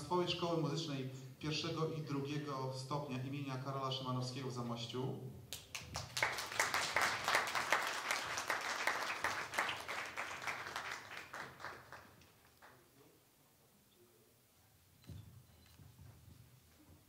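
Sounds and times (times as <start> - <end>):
audience applauding: 5.6 - 12.8.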